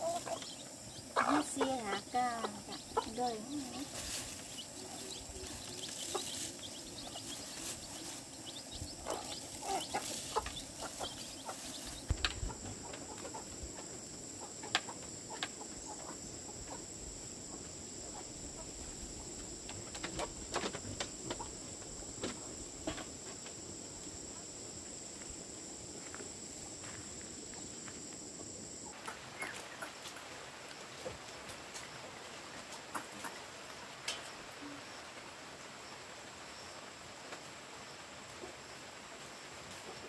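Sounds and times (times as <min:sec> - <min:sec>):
chickens clucking: 0:00.0 - 0:23.1, 0:28.9 - 0:30.4, 0:32.5 - 0:33.6.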